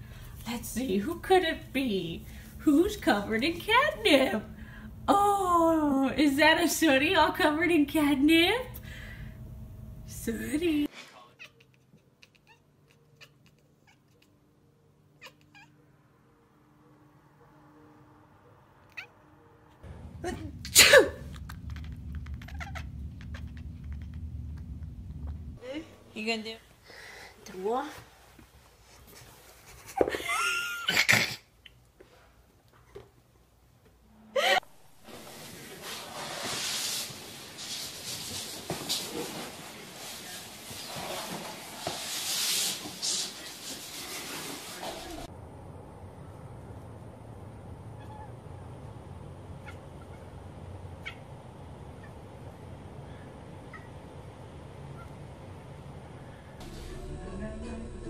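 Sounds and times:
cat chirping: 0:11.3 - 0:15.8, 0:18.8 - 0:19.3, 0:21.2 - 0:24.6, 0:47.9 - 0:48.4, 0:49.6 - 0:50.4, 0:51.0 - 0:52.2, 0:53.6 - 0:54.0
broom sweeping wood floor: 0:35.0 - 0:45.3
high gliding vocal sounds: 0:56.6 - 0:58.0.

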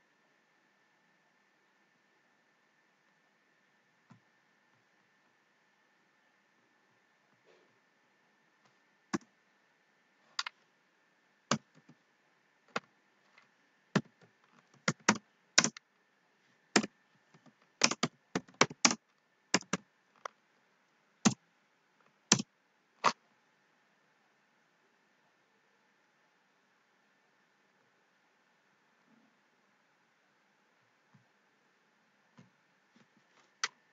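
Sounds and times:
keyboard key clicks: 0:14.8 - 0:15.8, 0:17.8 - 0:19.0.

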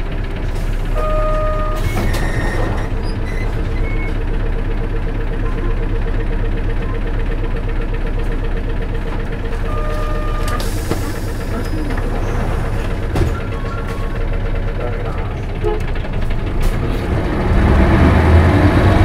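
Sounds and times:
bus diesel engine running: 0:00.0 - 0:19.0.

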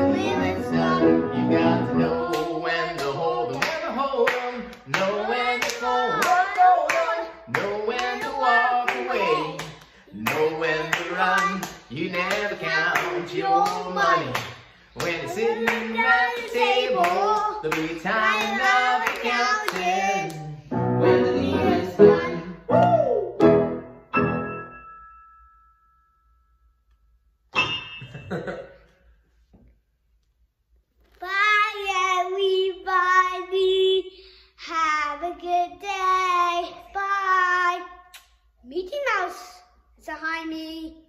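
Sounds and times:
man and boy singing: 0:00.0 - 0:23.0.

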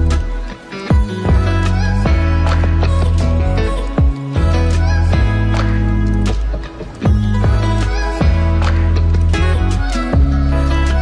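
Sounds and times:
instrumental music with steady beat: 0:00.0 - 0:11.0.

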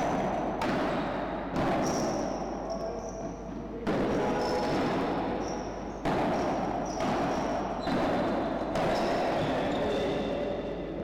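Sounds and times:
racket hitting ball: 0:00.0 - 0:02.5, 0:03.8 - 0:09.5.

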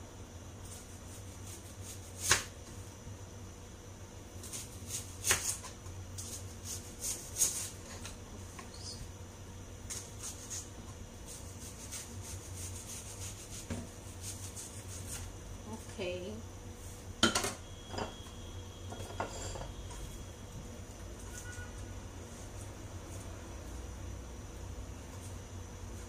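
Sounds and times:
knife slicing onion on board: 0:00.6 - 0:02.6, 0:04.4 - 0:08.2, 0:11.3 - 0:15.3.

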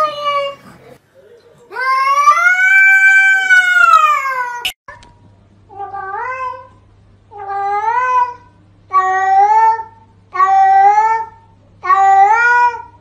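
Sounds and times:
cat yowling meow: 0:01.7 - 0:04.8, 0:07.4 - 0:13.0.

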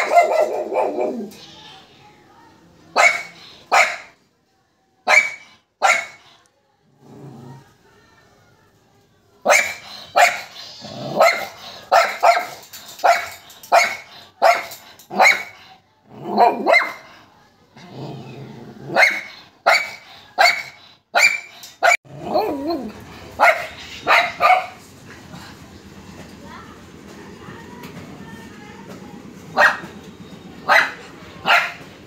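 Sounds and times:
small dog barking: 0:00.0 - 0:01.4, 0:03.0 - 0:04.2, 0:05.1 - 0:06.2, 0:09.4 - 0:15.6, 0:16.3 - 0:17.1, 0:18.9 - 0:24.8, 0:29.5 - 0:30.0, 0:30.6 - 0:31.9.

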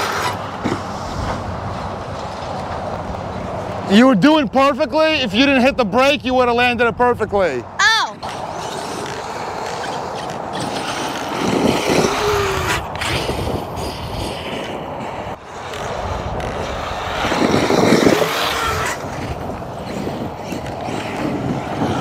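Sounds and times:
rc trucks running over dirt: 0:00.0 - 0:02.9, 0:08.2 - 0:22.0.

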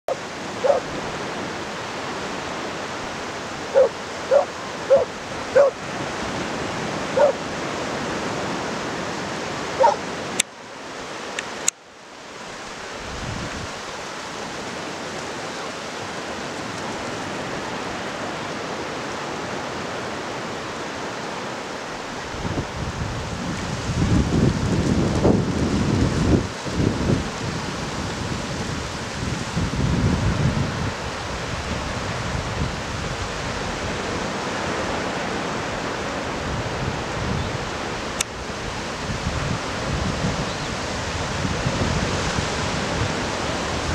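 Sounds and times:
dog barking: 0:00.1 - 0:00.9, 0:03.7 - 0:05.8, 0:07.1 - 0:07.4, 0:09.8 - 0:10.1
low surf washing on beach: 0:00.1 - 0:43.9.

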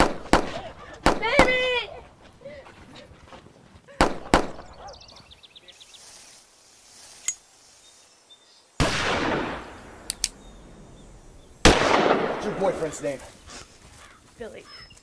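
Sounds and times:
sharp cracks: 0:08.8 - 0:10.4, 0:11.6 - 0:12.8
lighter clicks: 0:10.0 - 0:10.4.

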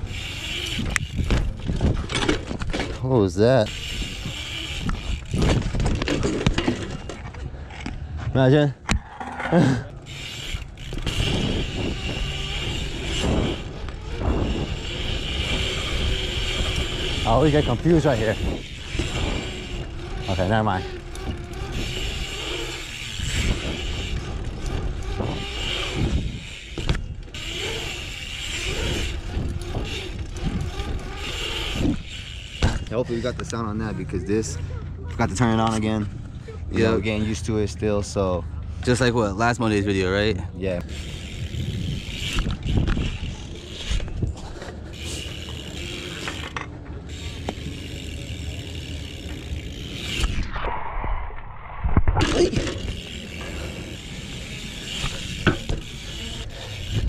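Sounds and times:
wind rumble on camera: 0:00.0 - 0:03.0, 0:03.8 - 0:09.2, 0:10.8 - 0:27.2, 0:28.5 - 0:32.9, 0:41.0 - 0:45.1
bike tyres rolling on concrete: 0:00.0 - 0:38.2, 0:38.8 - 0:50.7, 0:52.1 - 0:57.0
clicks and knocks from bike: 0:00.6 - 0:03.2, 0:04.8 - 0:08.2, 0:22.9 - 0:27.7, 0:28.6 - 0:33.6, 0:42.1 - 0:50.4, 0:54.8 - 0:57.0
freewheel hub ticking: 0:10.0 - 0:33.9, 0:40.8 - 0:50.2, 0:52.6 - 0:57.0.

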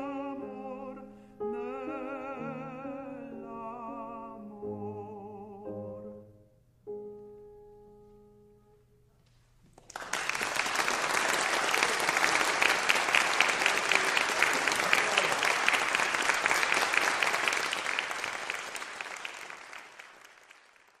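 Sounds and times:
audience applauding: 0:09.7 - 0:21.0.

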